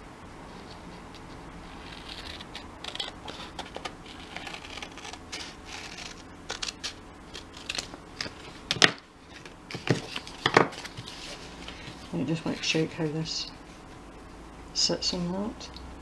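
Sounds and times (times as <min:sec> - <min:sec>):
paper rustling: 0:09.3 - 0:12.7.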